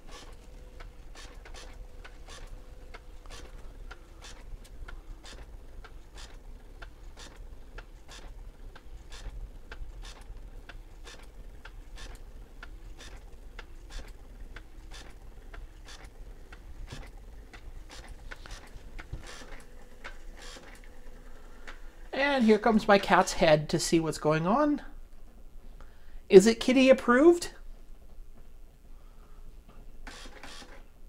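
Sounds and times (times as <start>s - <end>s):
thermal printer clicking: 0.0s - 22.1s, 30.0s - 30.8s.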